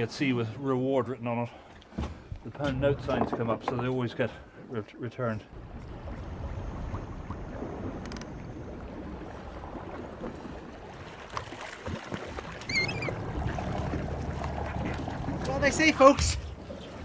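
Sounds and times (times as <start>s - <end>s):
sea noise: 0.0s - 17.0s
wind: 0.0s - 17.0s
boat engine rumble: 1.5s - 4.8s, 5.4s - 17.0s.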